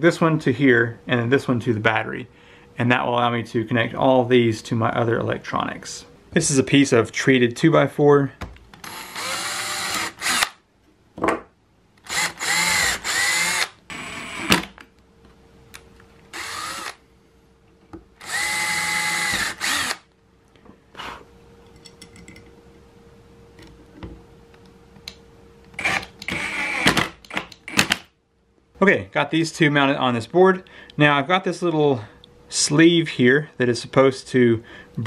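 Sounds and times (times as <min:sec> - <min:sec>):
cordless drill driving screws: 0:08.8 - 0:10.6, 0:12.0 - 0:14.7, 0:16.3 - 0:17.0, 0:18.2 - 0:20.0, 0:25.8 - 0:28.0.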